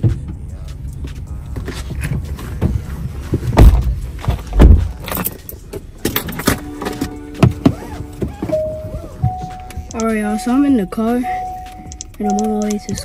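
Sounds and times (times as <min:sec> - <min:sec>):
heavy thumps on car seat: 0:02.6 - 0:05.0.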